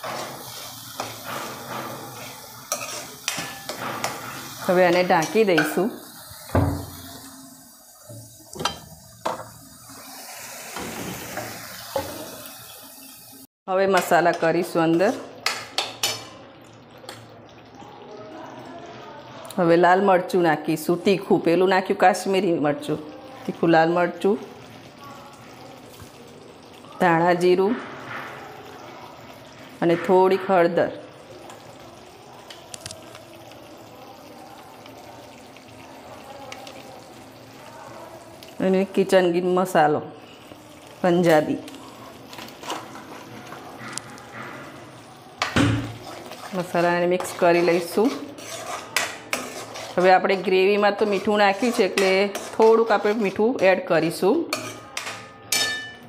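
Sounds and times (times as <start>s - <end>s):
gravy simmering: 14.7s - 19.8s, 20.7s - 56.0s.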